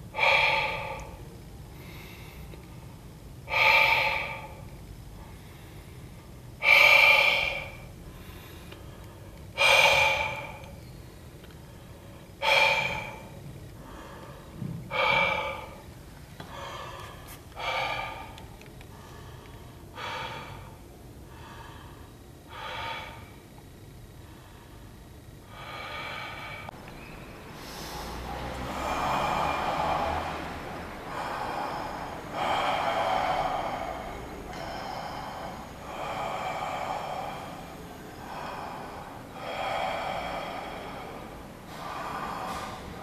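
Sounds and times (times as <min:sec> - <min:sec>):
person gasping: 0:00.0 - 0:02.6, 0:27.6 - 0:43.0.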